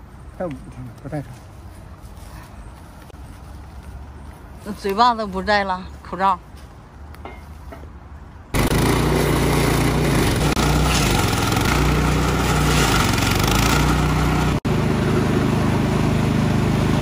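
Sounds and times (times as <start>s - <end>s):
stump grinder engine grinding: 8.6s - 17.0s.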